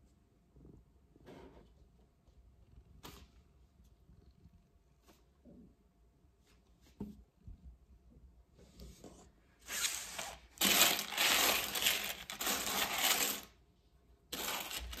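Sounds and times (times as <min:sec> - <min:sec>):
jigsaw puzzle pieces rattling: 0:10.6 - 0:13.5, 0:14.3 - 0:15.0.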